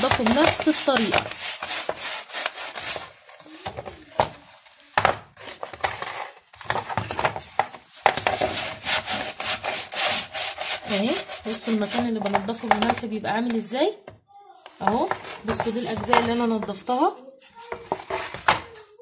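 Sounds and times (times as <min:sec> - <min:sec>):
salt scrubbing on metal: 0:00.0 - 0:03.6, 0:08.0 - 0:12.4.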